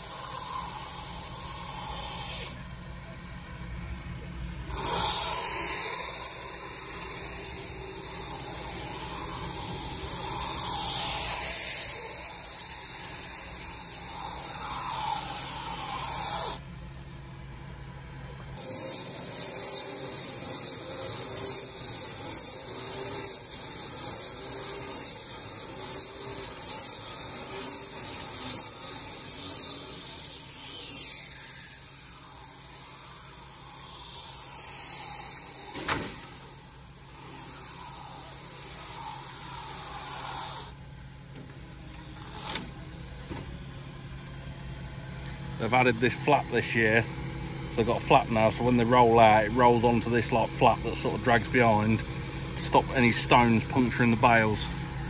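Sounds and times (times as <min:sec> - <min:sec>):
stretch film hissing: 0:00.0 - 0:02.6, 0:04.7 - 0:16.6, 0:18.6 - 0:40.8, 0:42.1 - 0:42.7.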